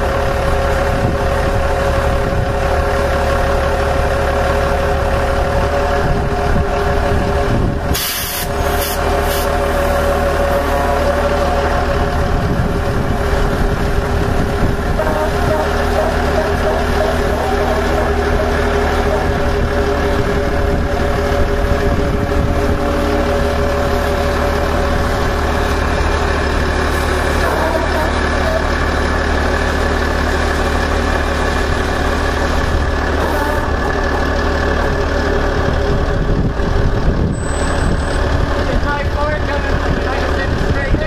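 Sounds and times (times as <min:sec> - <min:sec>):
engine droning: 0:00.0 - 0:41.0
faint voices: 0:15.0 - 0:20.6.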